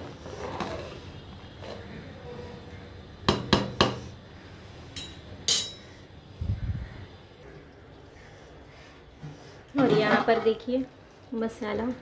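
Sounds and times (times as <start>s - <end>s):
metal spoon clinking on pot: 5.0s - 5.8s.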